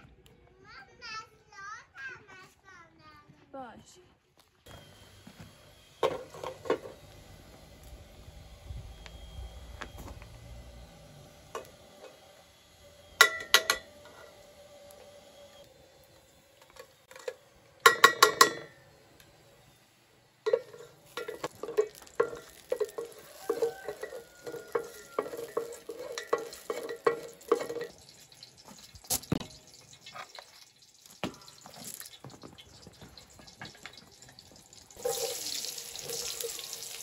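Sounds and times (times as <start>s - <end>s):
oil sizzling: 4.7s - 37.0s
kitchenware clatter: 13.2s - 13.9s, 17.1s - 18.8s, 20.5s - 30.6s
kitchenware clinking: 13.2s - 13.9s, 17.1s - 18.8s, 20.5s - 30.6s
wooden spoon scraping a pot: 20.5s - 28.0s.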